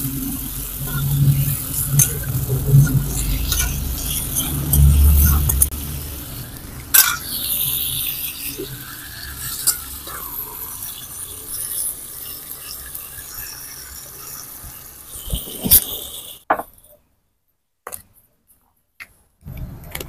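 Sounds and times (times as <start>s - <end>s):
food frying in a wok: 0.0s - 16.5s
metal spatula stirring: 0.6s - 5.8s, 6.9s - 14.5s
steel lid clinking: 6.9s - 8.2s.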